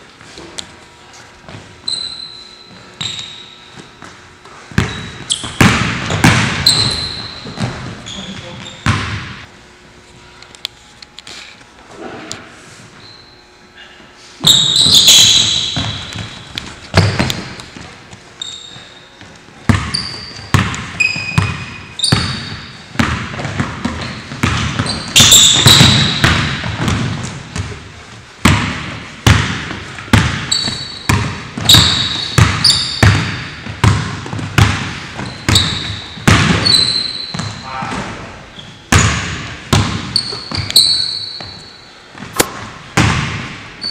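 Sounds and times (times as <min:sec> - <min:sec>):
sneaker squeaks: 0:00.2 - 0:09.5, 0:12.4 - 0:27.8, 0:29.9 - 0:42.5
basketball bouncing on hardwood: 0:04.8 - 0:08.0, 0:15.6 - 0:17.9, 0:19.7 - 0:27.8, 0:28.4 - 0:36.7, 0:38.9 - 0:40.7, 0:42.2 - 0:43.6.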